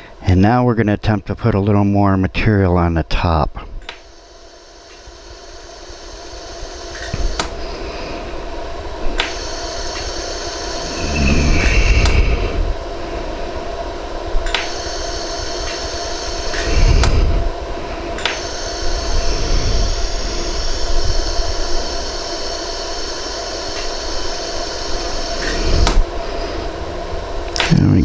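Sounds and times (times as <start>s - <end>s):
machine hum: 0.0s - 28.0s
laser welder snaps: 6.9s - 7.6s, 9.1s - 10.2s, 14.4s - 15.0s, 15.6s - 15.8s, 18.2s - 18.6s, 23.7s - 24.0s, 27.5s - 27.8s.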